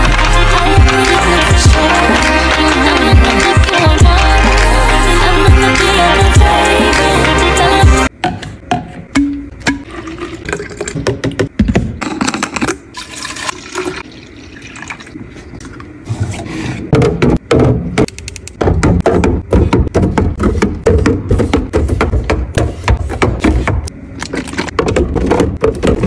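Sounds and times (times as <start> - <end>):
knocks and clunks of bottles: 8.2 - 12.7, 16.9 - 26.0
liquid pouring into glass carafe: 9.9 - 11.0, 13.0 - 15.1.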